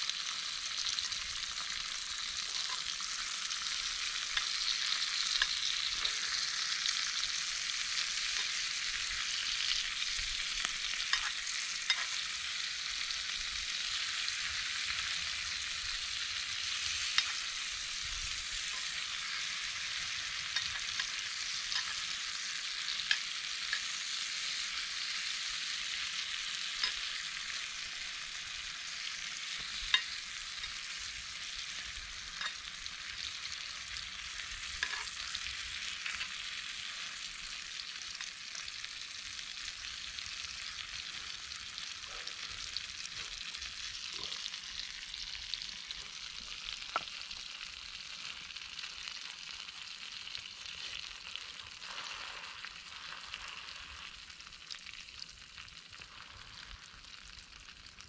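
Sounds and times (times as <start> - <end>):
food sizzling in a pan: 0.0 - 58.0.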